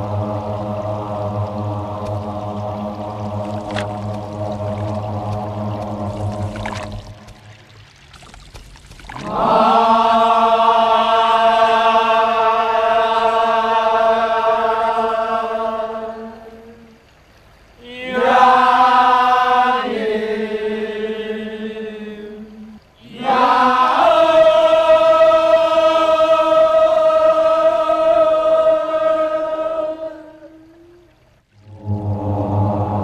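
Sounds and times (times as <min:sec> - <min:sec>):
vocal chanting in long held notes: 0:00.0 - 0:07.4, 0:09.2 - 0:17.1, 0:17.8 - 0:33.0.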